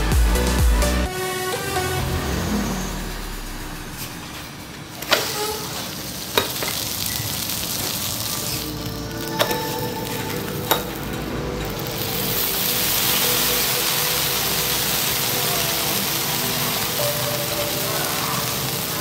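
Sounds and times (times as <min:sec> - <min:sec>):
pancakes sizzling on griddle: 0:05.0 - 0:10.9, 0:11.6 - 0:19.0.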